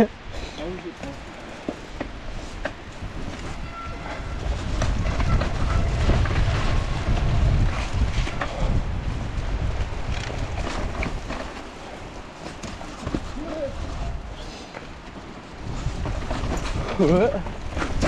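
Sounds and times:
bike tyres rumbling on dirt: 0:00.4 - 0:18.0
wind on microphone: 0:01.1 - 0:14.6, 0:15.5 - 0:18.0.

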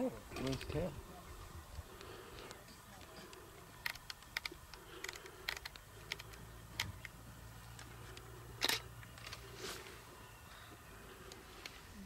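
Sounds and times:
sharp clicks and snaps: 0:02.0 - 0:07.2.

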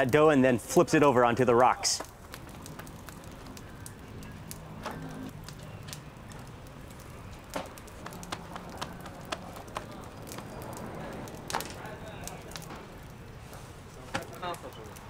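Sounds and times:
hands slapping bread dough: 0:07.6 - 0:10.5.

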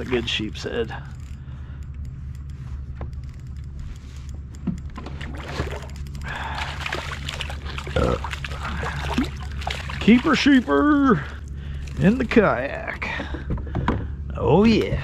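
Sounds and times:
gear clicking and knocking: 0:00.0 - 0:14.1
steady low rumble: 0:00.0 - 0:15.0
water sloshing: 0:04.8 - 0:13.8
fish splashing at water surface: 0:05.2 - 0:12.1.

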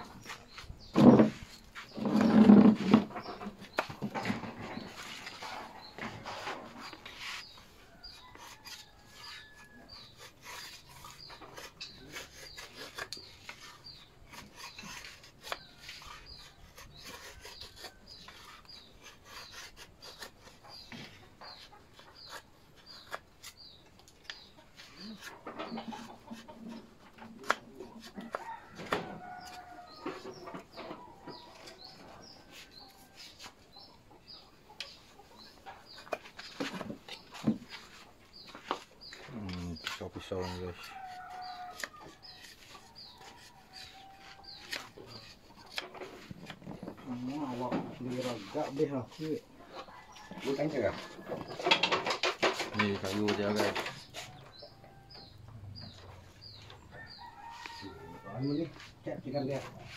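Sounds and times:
knife scraping wood: 0:00.0 - 0:59.9
chickens clucking: 0:20.4 - 0:28.4, 0:29.6 - 0:59.9.

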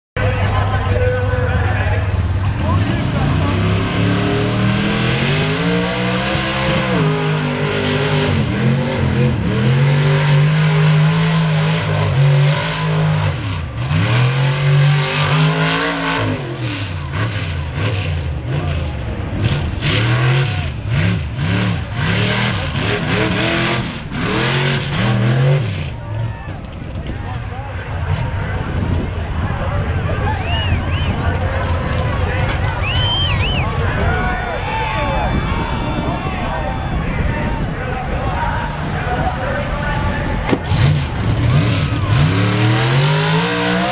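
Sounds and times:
truck engine revving: 0:00.2 - 0:34.6, 0:37.6 - 0:43.9
engine crackles: 0:00.2 - 0:35.0.

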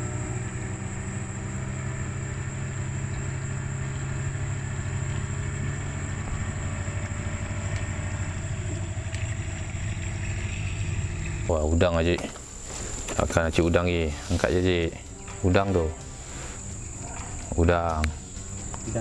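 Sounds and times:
small boat engine idling: 0:00.0 - 0:19.0.

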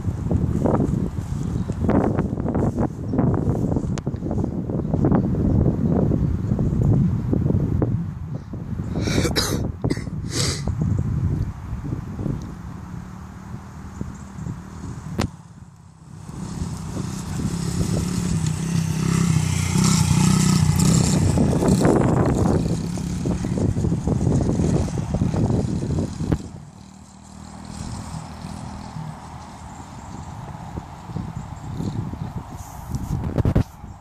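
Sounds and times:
mini dirt bike engine running: 0:14.1 - 0:32.4.

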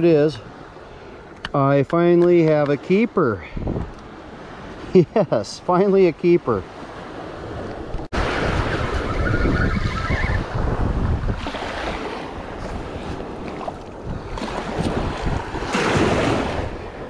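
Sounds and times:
wind buffeting microphone: 0:03.4 - 0:04.8, 0:07.0 - 0:17.0
small waves washing on sand: 0:06.3 - 0:09.2, 0:10.4 - 0:17.0.

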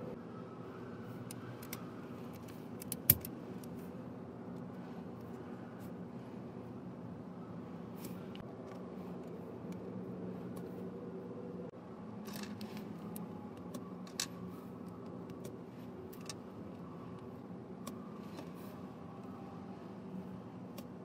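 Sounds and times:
steady low hum: 0:00.0 - 0:21.0
plastic parts clicking together: 0:01.3 - 0:03.8.

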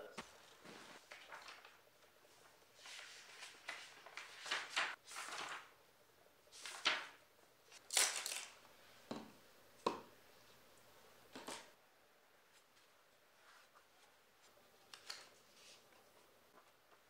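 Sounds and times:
pages being turned: 0:00.2 - 0:05.8, 0:06.5 - 0:08.6, 0:12.5 - 0:17.0.

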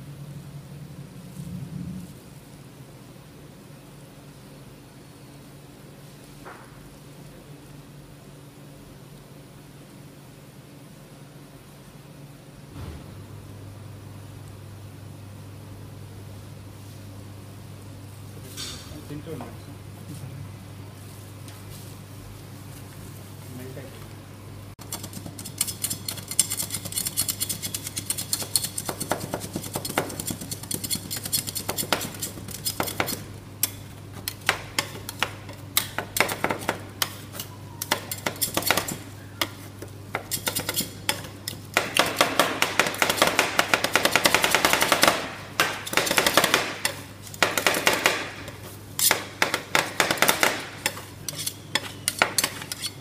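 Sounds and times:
steady low hum: 0:00.0 - 0:53.0
metal spatulas tapping and scraping: 0:24.8 - 0:53.0.

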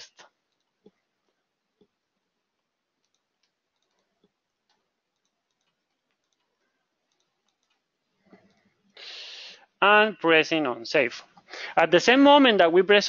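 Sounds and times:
computer keyboard and mouse clicks: 0:00.5 - 0:02.0, 0:03.0 - 0:08.7.

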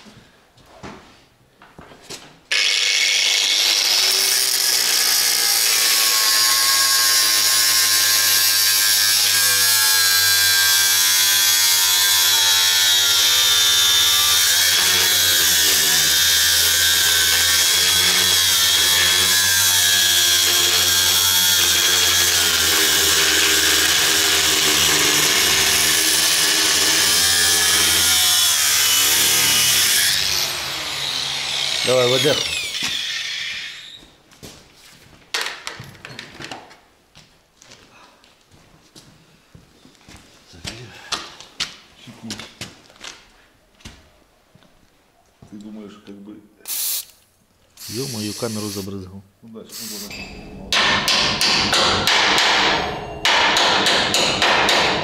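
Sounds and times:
angle grinder cutting steel: 0:02.5 - 0:33.9, 0:47.8 - 0:48.9, 0:49.8 - 0:54.2.

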